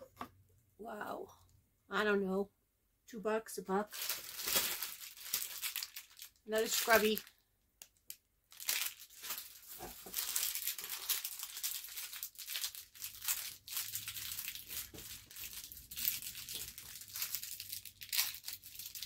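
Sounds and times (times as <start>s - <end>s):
plastic packaging crinkling and tearing: 3.9s - 19.0s.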